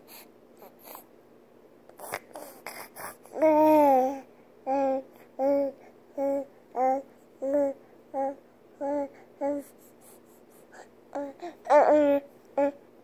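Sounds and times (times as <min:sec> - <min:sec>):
baby babbling: 0:02.0 - 0:09.8, 0:11.1 - 0:12.8.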